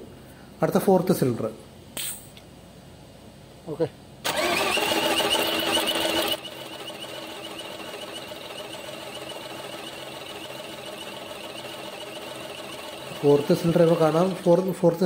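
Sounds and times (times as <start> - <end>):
starter motor cranking diesel engine: 4.2 - 15.0.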